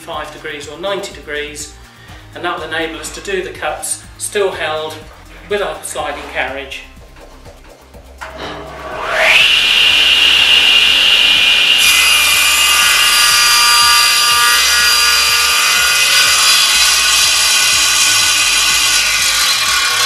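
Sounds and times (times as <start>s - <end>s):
saw blade cutting board: 8.2s - 20.0s
table saw whining: 8.2s - 20.0s.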